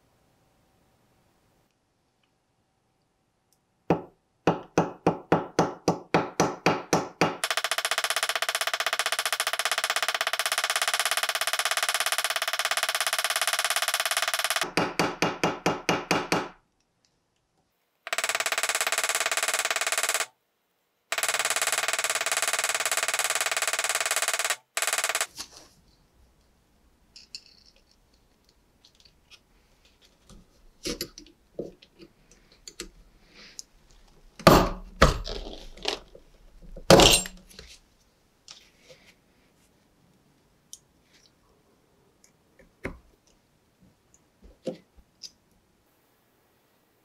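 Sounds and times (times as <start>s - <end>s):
small brass parts clicking: 27.2s - 29.4s.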